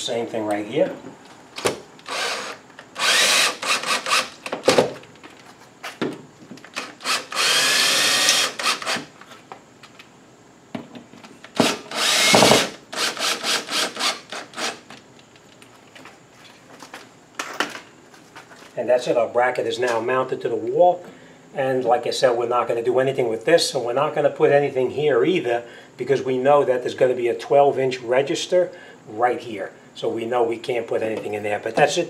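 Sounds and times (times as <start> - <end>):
cordless drill driving screws: 2.0 - 4.4, 6.8 - 9.1, 11.6 - 14.8.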